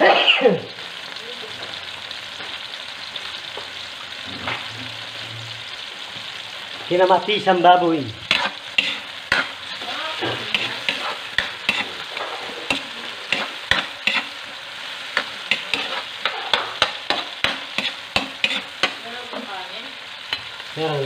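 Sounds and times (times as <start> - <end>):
tomatoes sizzling in oil: 0.0 - 21.0
metal ladle scraping a wok: 8.3 - 14.4, 15.1 - 19.0.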